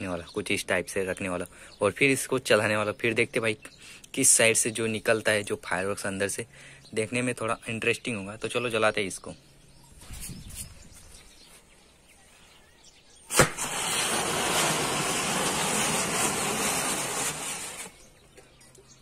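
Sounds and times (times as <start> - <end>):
firework crack: 13.3 - 18.0
hiss of spraying sparks: 13.3 - 18.0.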